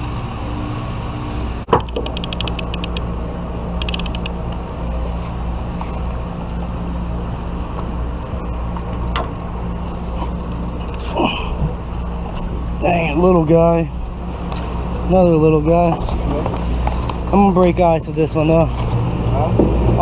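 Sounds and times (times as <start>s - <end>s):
boat engine drone: 0.0s - 20.0s
fishing reel clicking: 1.8s - 3.0s, 3.8s - 4.3s.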